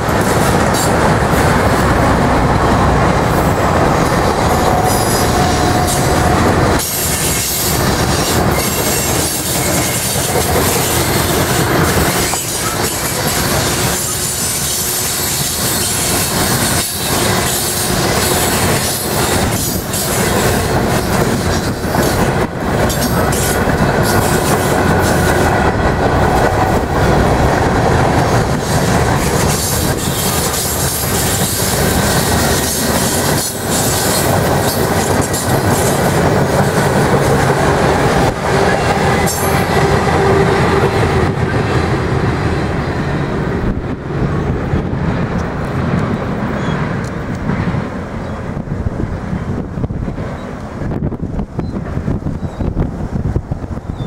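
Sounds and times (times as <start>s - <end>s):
train wheels rumbling on rail: 0.0s - 54.0s
wheels clicking over rail joints: 3.0s - 42.2s.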